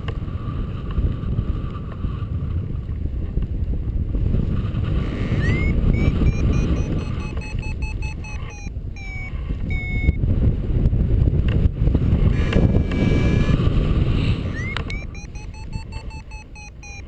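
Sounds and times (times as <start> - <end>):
wind buffeting microphone: 0.0 - 17.0
variometer beeping: 5.2 - 10.2, 12.3 - 13.7, 14.4 - 17.0.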